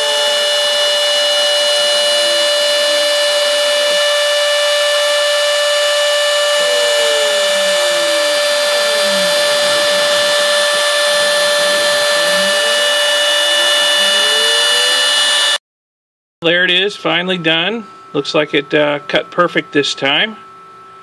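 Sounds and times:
motor tones sliding up and down: 0.0 - 15.6
router spindle high whine: 0.0 - 15.6.

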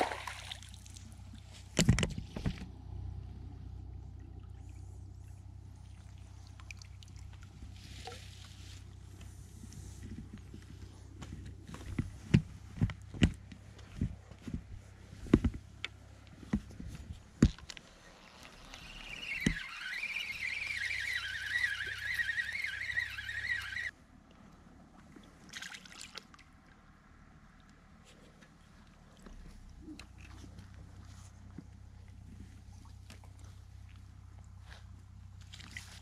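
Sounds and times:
fishing reel whirring: 18.2 - 23.9.

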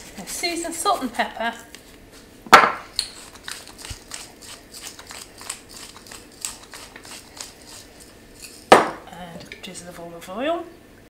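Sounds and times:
pepper mill clicking: 3.0 - 8.6.

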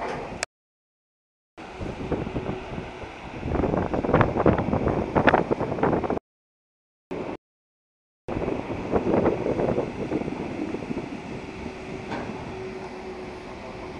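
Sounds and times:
wind buffeting microphone: 1.6 - 6.2, 8.3 - 13.9.

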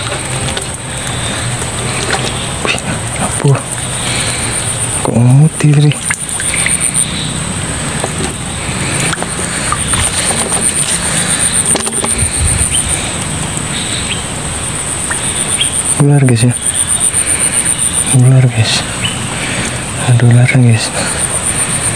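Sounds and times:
insect high-pitched pulsing call: 3.8 - 7.5, 8.3 - 19.6, 21.0 - 21.9.

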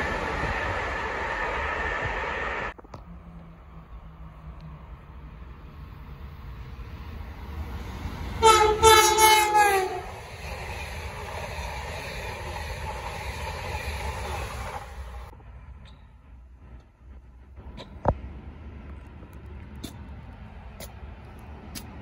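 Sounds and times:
train rushing past: 0.0 - 22.0
train horn blasts: 8.4 - 10.2.

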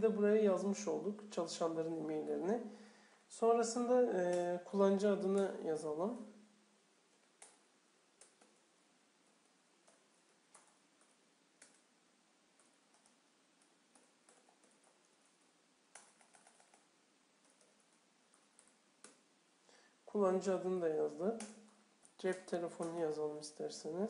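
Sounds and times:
faint keyboard typing: 4.1 - 5.6, 7.1 - 19.3, 20.8 - 23.6.

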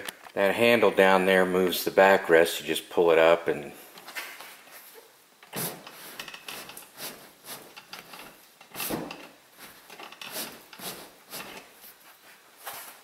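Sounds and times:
seat mechanism clunks and rubbing: 5.5 - 9.4.

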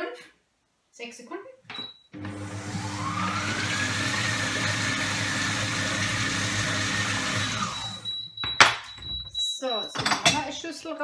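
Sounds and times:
kitchen blender motor whine: 2.2 - 8.1.

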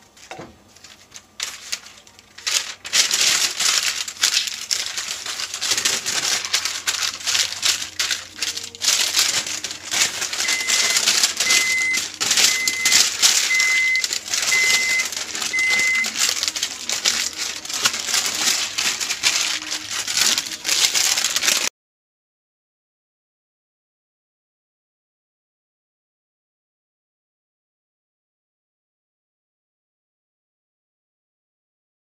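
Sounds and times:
parchment paper crinkling: 0.0 - 21.7
electronic beeper beeps: 10.4 - 16.1.

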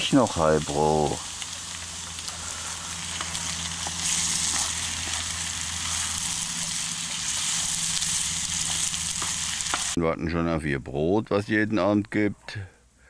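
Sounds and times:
food sizzling in a pan: 0.0 - 10.0
steady low hum: 0.0 - 10.0.

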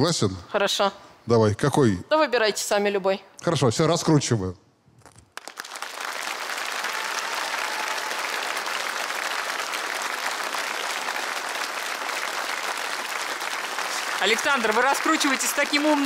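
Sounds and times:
audience applauding: 5.4 - 16.0.

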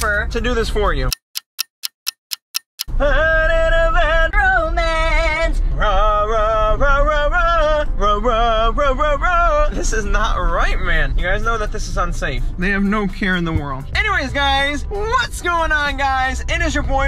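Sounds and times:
clock ticks: 1.0 - 3.0
man singing with vibrato: 2.8 - 10.6
car rumble on road: 2.9 - 17.0.

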